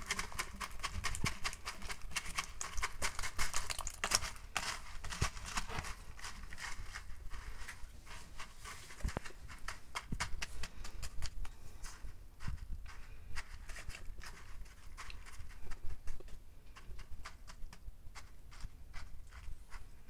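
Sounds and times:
fingers crunching granular substrate: 0.0 - 11.9.

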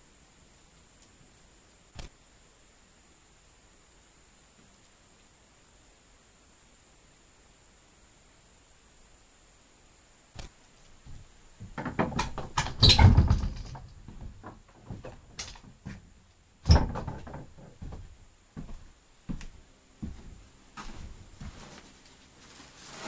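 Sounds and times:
door knocks and rattles: 11.6 - 15.8, 16.6 - 18.1
door thumping shut: 11.7 - 13.9, 16.7 - 17.6.

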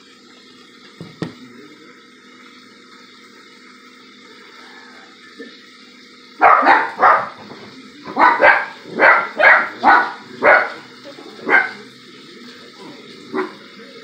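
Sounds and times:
dog barking: 6.4 - 7.5, 8.1 - 11.9, 13.3 - 13.7.

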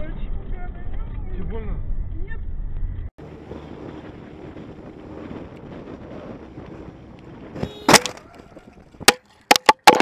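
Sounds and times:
road and wind noise: 0.0 - 10.0
camera knocking while tumbling: 9.0 - 10.0.

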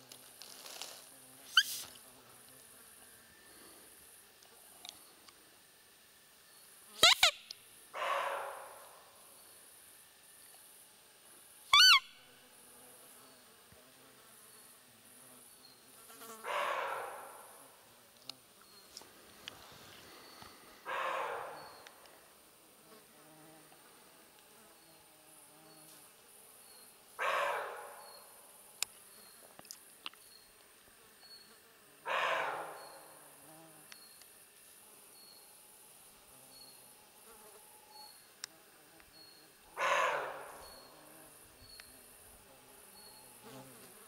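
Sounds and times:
faint insects buzzing: 0.0 - 44.0
deer call squeak: 1.5 - 1.8, 7.0 - 7.4, 11.7 - 12.2.

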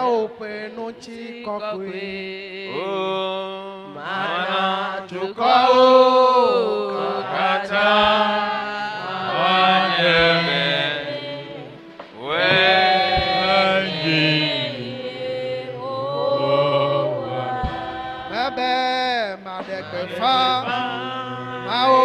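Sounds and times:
man singing into a microphone: 0.0 - 10.7, 16.4 - 22.0.

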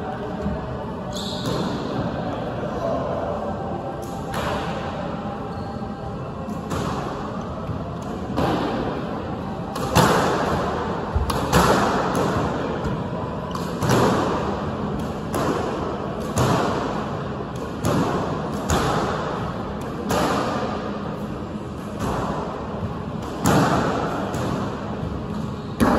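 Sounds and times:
squash ball hitting walls: 9.7 - 20.8, 22.0 - 25.9
racket striking ball: 11.2 - 12.6, 13.5 - 14.4, 15.0 - 20.8, 23.2 - 25.9.

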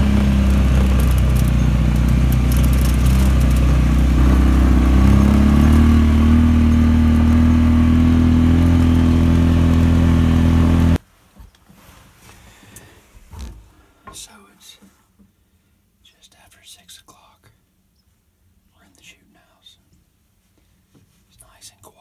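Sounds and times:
road noise on dirt track: 0.0 - 11.0
vehicle engine running: 0.0 - 11.0.

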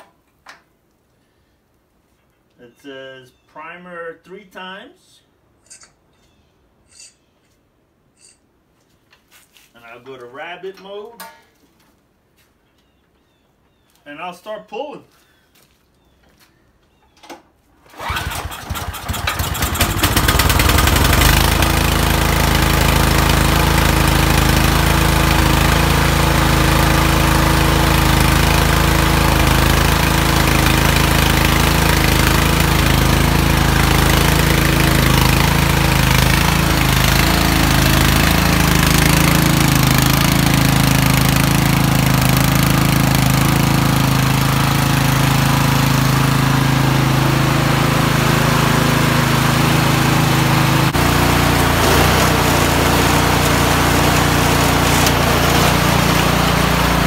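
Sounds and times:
snowblower engine running: 17.8 - 57.0.

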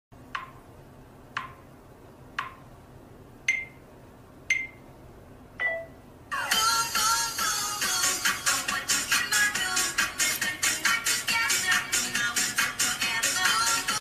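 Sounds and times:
self-timer beeps: 3.5 - 3.8, 4.5 - 4.9, 5.6 - 6.0
music: 6.4 - 14.0.

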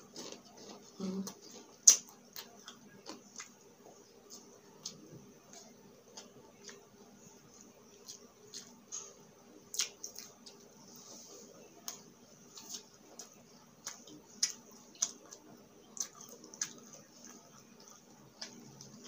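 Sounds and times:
chewing crispy chips: 0.0 - 3.6, 11.8 - 19.0.

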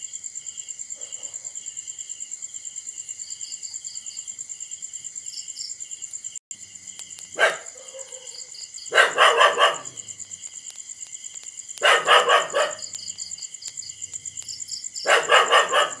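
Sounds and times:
crickets chirping: 0.0 - 16.0
dog barking: 1.0 - 1.6, 7.4 - 10.1, 11.8 - 13.0, 15.0 - 16.0.

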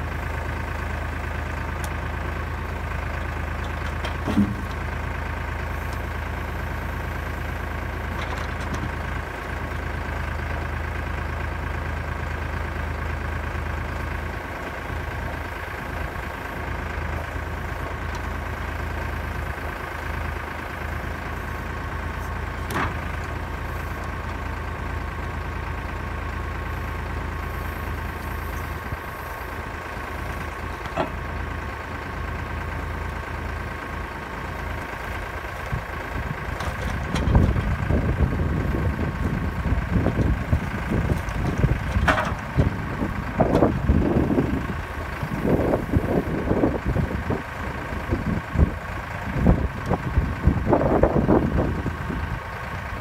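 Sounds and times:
tractor diesel engine running: 0.0 - 53.0
logs knocking: 3.9 - 4.9.

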